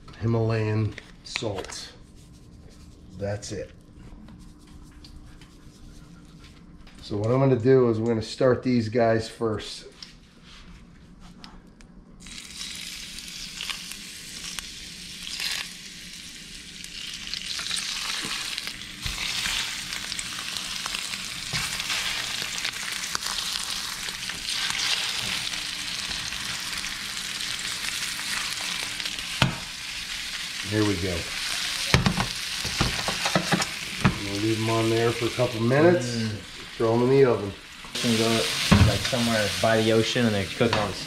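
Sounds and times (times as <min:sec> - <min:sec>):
food sizzling in oil: 0:12.2 - 0:41.0.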